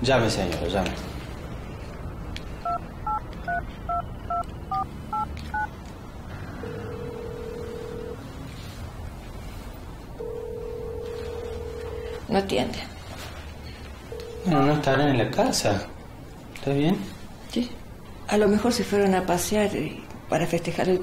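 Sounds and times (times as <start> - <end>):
phone ringing tone: 2.6 - 5.7, 6.4 - 8.4, 10.2 - 12.3, 14.1 - 15.1
touch-tone keypad beeps: 2.6 - 5.7.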